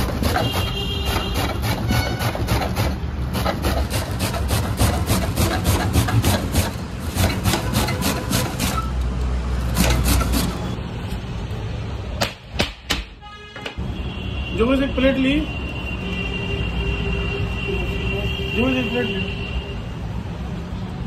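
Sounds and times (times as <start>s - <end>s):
rapid food preparation strokes: 0.0s - 9.0s, 9.6s - 10.8s.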